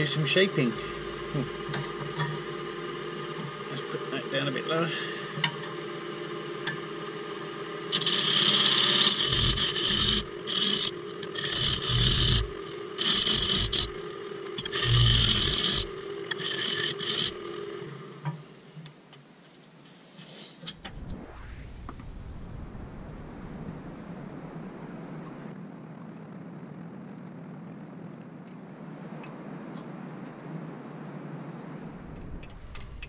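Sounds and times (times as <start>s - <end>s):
lathe motor hum: 0.0s - 18.4s, 31.9s - 33.0s
sandpaper scratching turning wood: 7.9s - 14.0s, 14.6s - 17.4s.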